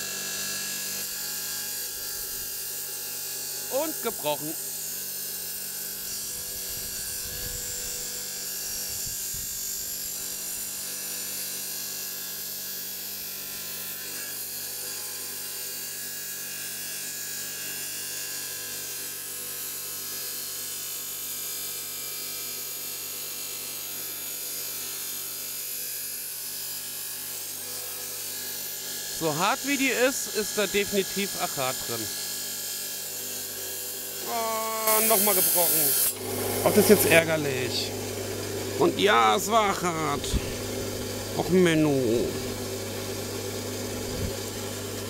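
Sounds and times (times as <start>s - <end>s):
stone saw grinding: 26.3s - 45.0s.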